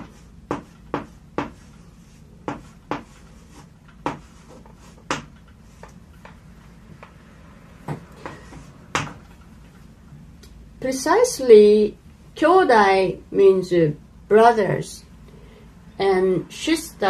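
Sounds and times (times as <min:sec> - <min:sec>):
chalk tapping and scraping on blackboard: 0:00.0 - 0:07.2, 0:07.9 - 0:09.4.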